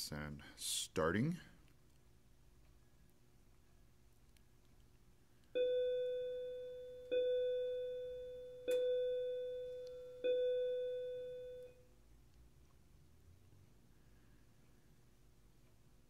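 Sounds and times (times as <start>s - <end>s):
electronic chime tones: 5.6s - 11.7s.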